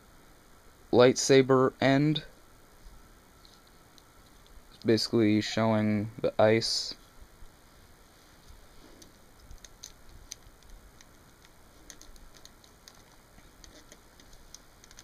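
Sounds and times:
plastic figure parts clicking: 9.0 - 15.0.

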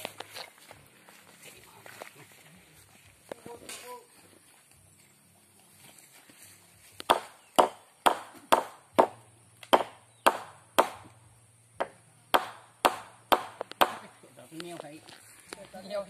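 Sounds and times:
hammer striking wood: 7.0 - 11.2, 11.8 - 14.1.

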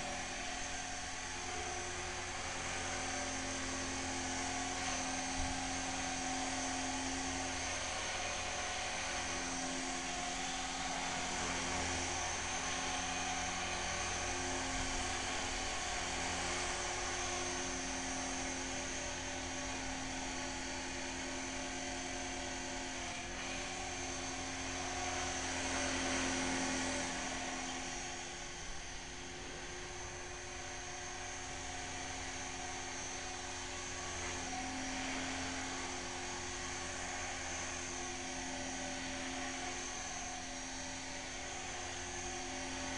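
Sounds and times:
model helicopter high whine: 0.0 - 42.9.

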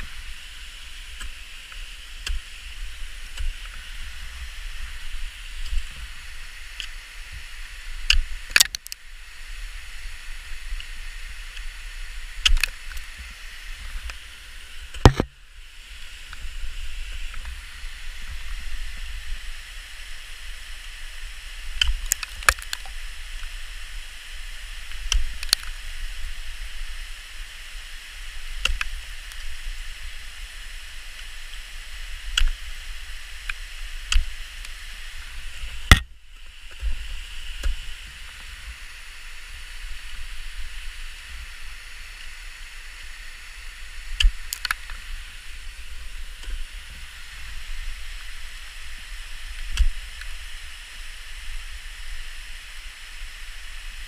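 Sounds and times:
steady hiss: 0.0 - 54.0
ice axe striking ice: 15.0 - 15.4.

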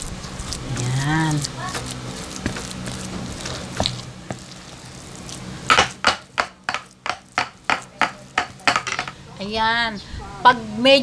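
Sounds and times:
spoon slapping wet ground meat: 0.0 - 8.8.

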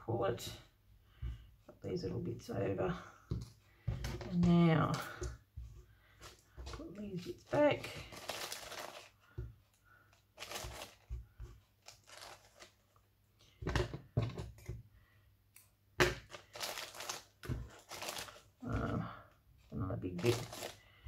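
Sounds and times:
yarn scraps rustling: 6.0 - 9.4, 10.2 - 12.9, 16.2 - 18.9, 20.1 - 21.0
plastic bag crinkling: 6.2 - 9.2, 10.3 - 11.2, 11.8 - 12.8, 16.2 - 18.5, 20.1 - 21.0.

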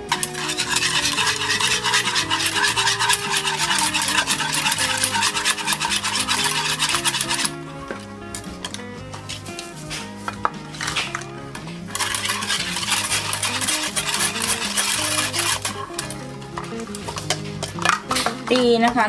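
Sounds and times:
whisk scraping a saucepan: 0.0 - 7.7, 11.8 - 18.5
background music: 0.0 - 19.0.

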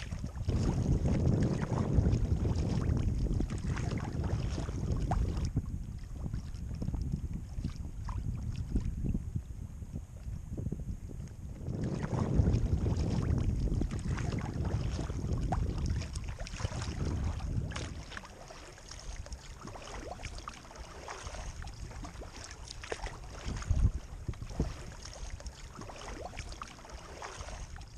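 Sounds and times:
water lapping at hull: 0.0 - 27.9
water splashing against kayak: 0.0 - 27.9
wind rumbling on microphone: 0.0 - 27.9.

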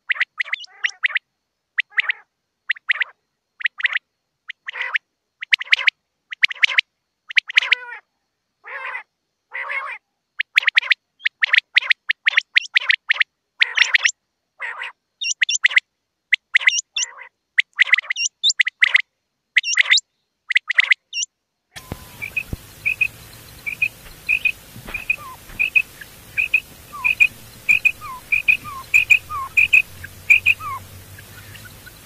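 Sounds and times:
quail squawky calls: 0.1 - 1.2, 1.8 - 4.0, 4.6 - 8.0, 8.6 - 15.8, 16.4 - 19.0, 19.6 - 32.0
higher flicking notes: 21.8 - 32.0.

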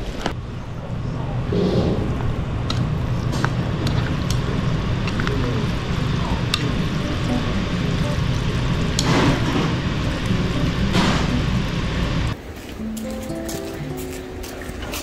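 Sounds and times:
low room rumble: 0.0 - 12.4.

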